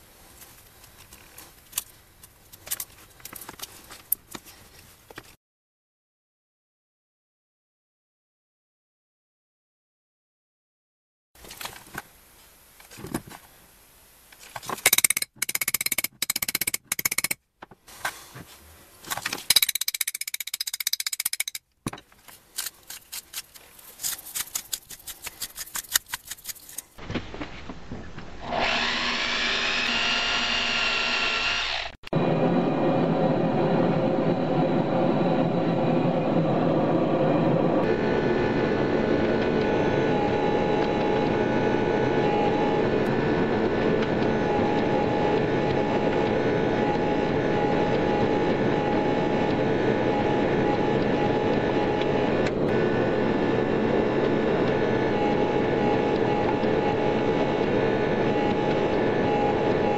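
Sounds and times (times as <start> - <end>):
metal spoon clinking and scraping: 19.5 - 21.6, 22.6 - 26.9
power tool motor whining: 28.2 - 32.3.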